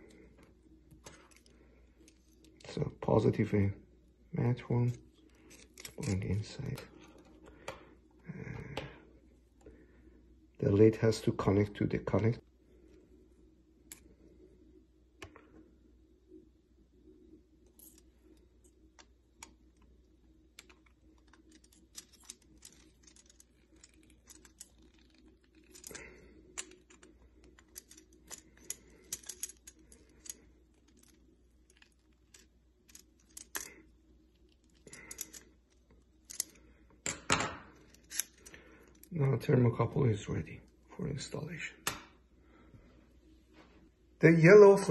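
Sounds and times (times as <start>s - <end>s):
low steady hum: 0.0s - 44.9s
small parts clicking and tapping: 17.7s - 39.1s.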